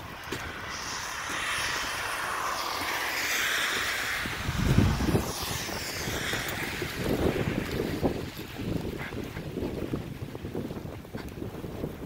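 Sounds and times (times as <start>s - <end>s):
car tyres swishing on wet street: 0.0s - 12.0s
wind buffeting microphone: 0.0s - 12.0s.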